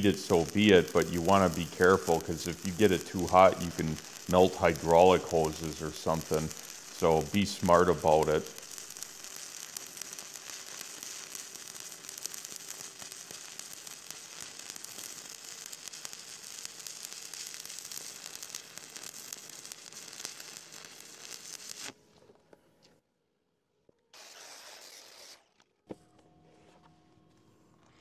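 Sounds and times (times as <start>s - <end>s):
welding arc crackling: 0.0s - 22.0s.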